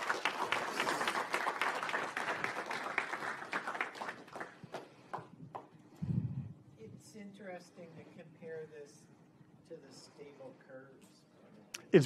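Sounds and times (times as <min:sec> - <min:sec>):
audience applauding: 0:00.0 - 0:04.8.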